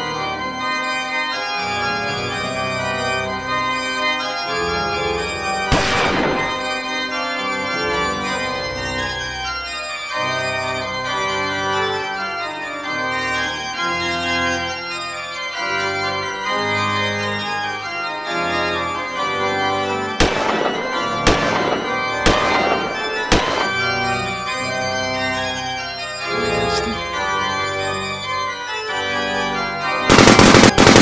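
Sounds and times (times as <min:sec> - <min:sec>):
organ playing slow chords: 0:00.0 - 0:31.0
pistol shots: 0:05.7 - 0:06.8, 0:20.2 - 0:24.4, 0:30.1 - 0:31.0.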